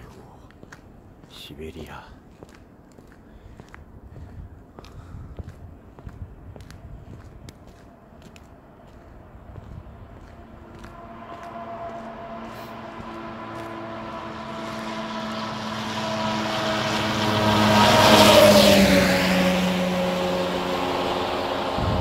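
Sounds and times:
vehicle passing by: 0:06.2 - 0:22.0.

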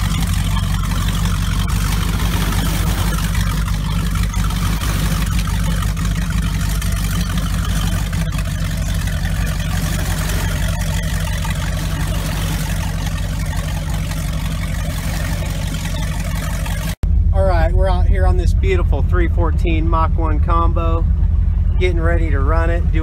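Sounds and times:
motorboat engine idling: 0:00.0 - 0:23.0.

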